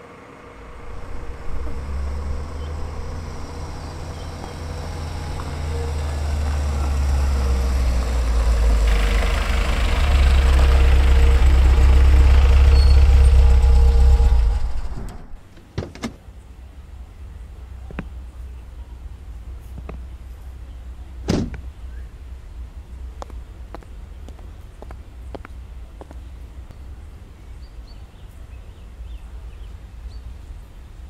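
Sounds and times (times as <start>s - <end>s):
deep low rumble: 0.4s - 15.5s.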